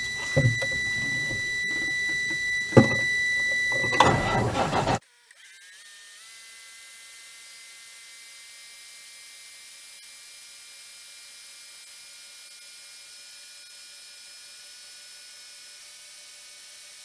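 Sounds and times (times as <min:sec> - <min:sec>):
faint steady tones: 0:00.0 - 0:05.0.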